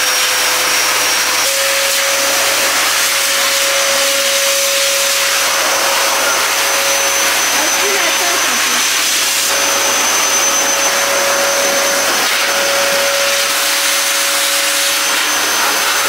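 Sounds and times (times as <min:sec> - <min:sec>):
blower dryer rush of air: 0:00.0 - 0:16.0.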